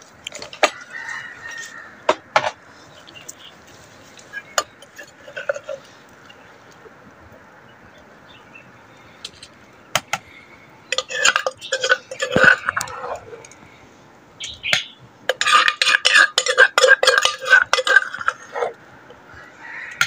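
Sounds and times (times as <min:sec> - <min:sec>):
metal spoon clinking on container: 0:10.9 - 0:12.9, 0:15.3 - 0:18.5.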